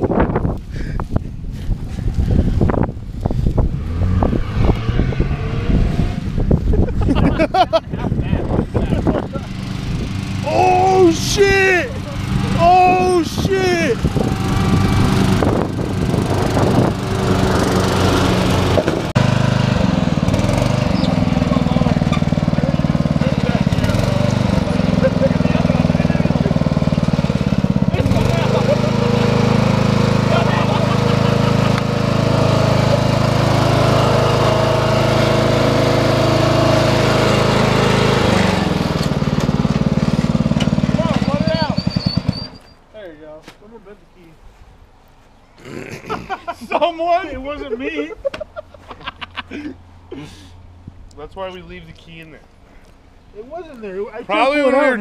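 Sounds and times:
engine running: 1.0s - 42.8s.

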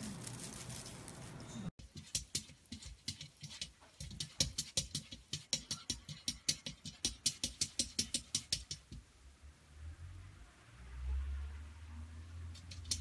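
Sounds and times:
cat's paws tapping on mirror: 1.8s - 9.1s, 12.5s - 13.0s.

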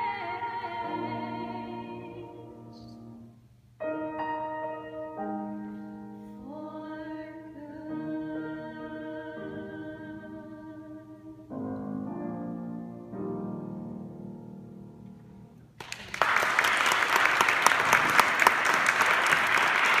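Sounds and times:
two women singing with vibrato: 0.0s - 2.4s, 6.4s - 11.6s
piano chords: 0.0s - 15.8s
audience applause: 15.8s - 20.0s.

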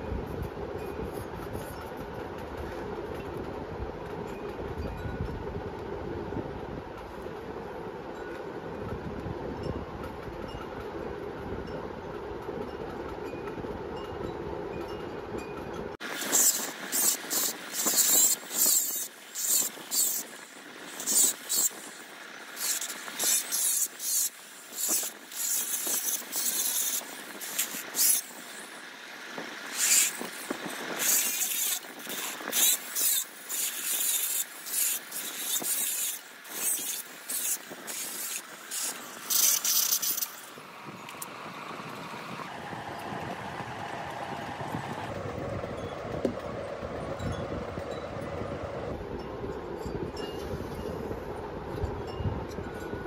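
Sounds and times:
hand scraping metal: 29.7s - 40.5s.

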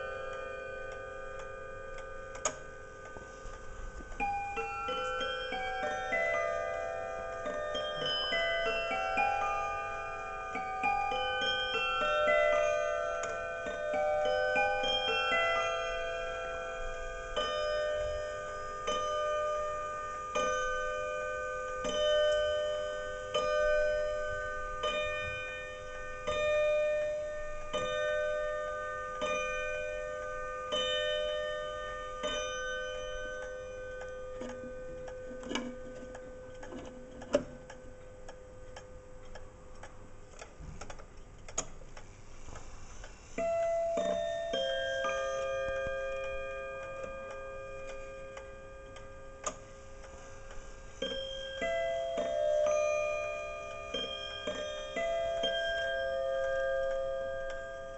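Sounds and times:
clock chime melody: 0.0s - 40.2s, 43.1s - 57.9s
clock striking: 0.0s - 41.8s, 43.0s - 57.9s
clock ticking: 32.2s - 57.9s
clock hand clicks: 33.4s - 43.2s.

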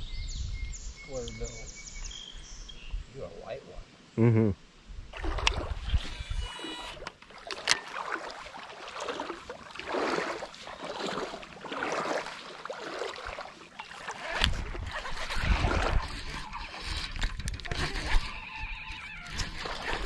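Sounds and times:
water swishing around wading legs: 5.1s - 20.0s.

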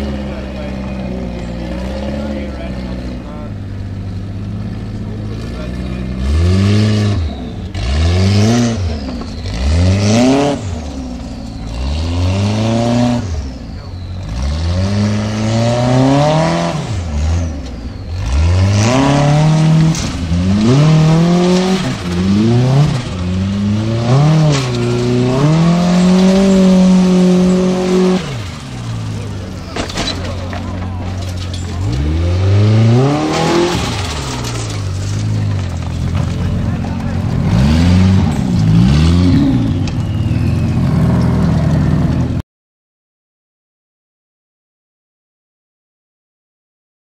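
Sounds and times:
buggy engine revving hard: 0.0s - 42.4s.

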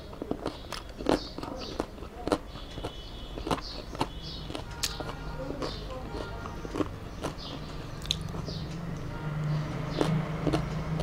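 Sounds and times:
wet chewing and lip smacking: 0.0s - 11.0s.

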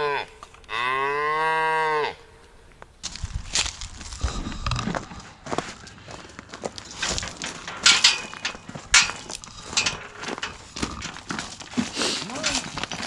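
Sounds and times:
footsteps on gravel: 3.0s - 13.0s
scraping knocks: 6.7s - 13.0s.

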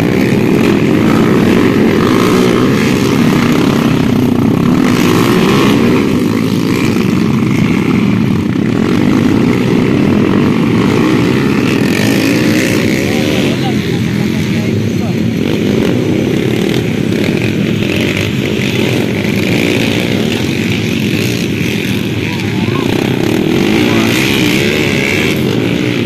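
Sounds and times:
motorcycle engines revving: 0.0s - 26.0s.

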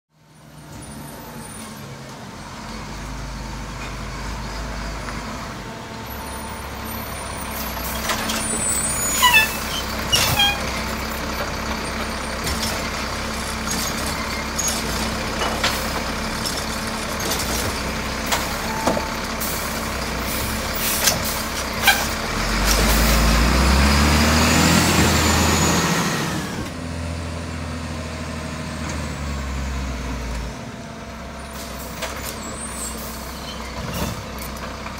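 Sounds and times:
diesel garbage truck running: 0.1s - 34.9s
short high squeaks: 7.8s - 10.9s, 21.7s - 22.2s.

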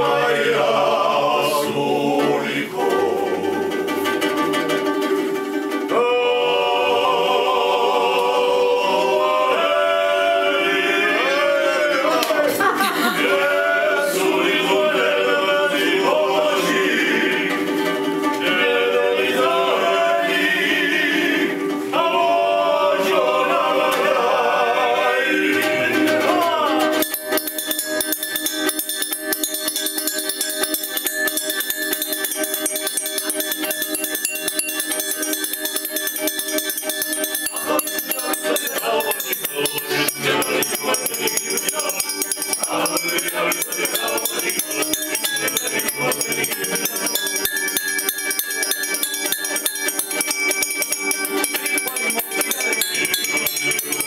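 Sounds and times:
male choir singing a cappella: 0.0s - 4.7s, 5.9s - 27.2s, 37.3s - 49.8s, 51.8s - 54.0s.

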